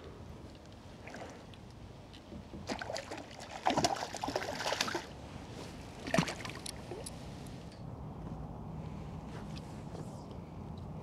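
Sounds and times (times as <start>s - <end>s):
water splashing and trickling: 2.5s - 5.2s, 6.0s - 7.1s
sharp splash: 2.7s - 5.1s.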